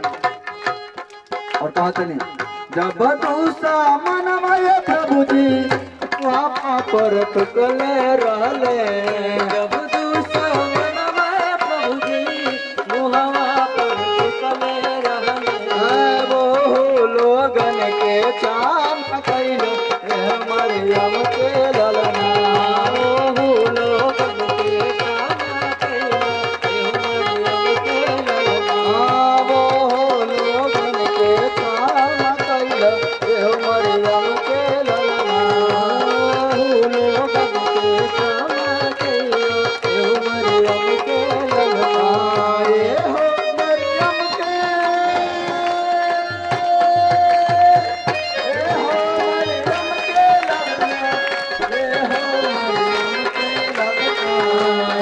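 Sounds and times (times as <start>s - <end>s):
congregation clapping: 0.0s - 2.5s, 43.1s - 55.0s
tabla beat: 0.0s - 55.0s.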